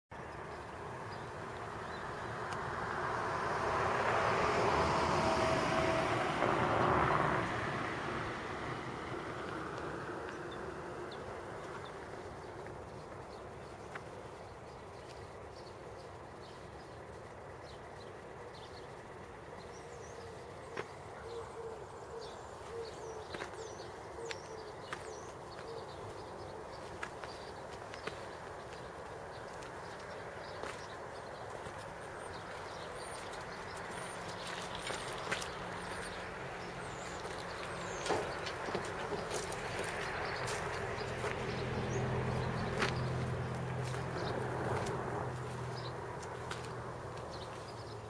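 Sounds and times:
vehicle tyres on wet road: 1.6 - 13.2, 27.0 - 48.0
small birds chirping: 8.2 - 48.0
dove cooing: 21.1 - 24.8.

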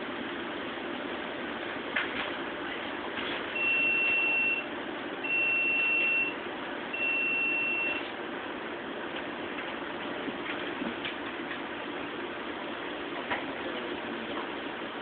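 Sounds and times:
aquarium equipment humming: 0.0 - 15.0
long electronic beeps: 3.6 - 6.4, 7.0 - 8.0.

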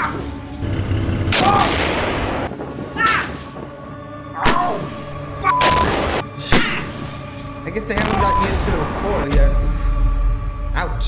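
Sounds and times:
tank cannon firing: 0.6 - 2.5, 8.0 - 8.7.

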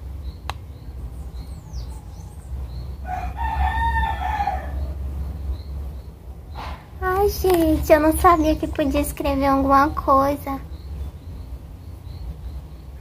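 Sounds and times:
steady low rumble: 0.0 - 13.0
rooster crowing: 1.6 - 2.4, 3.0 - 5.0.

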